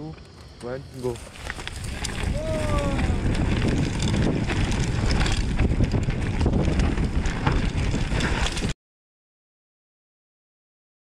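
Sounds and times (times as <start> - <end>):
bike rattles and knocks: 0.2 - 8.8
bike rumbling over rough trail: 0.3 - 8.8
wind buffeting microphone: 0.9 - 8.8.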